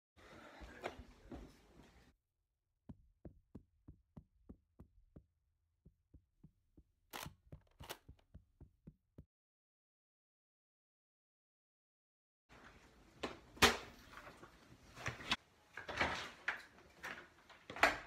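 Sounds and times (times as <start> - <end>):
footsteps on carpeted stairs: 0.6 - 2.1, 2.9 - 9.3.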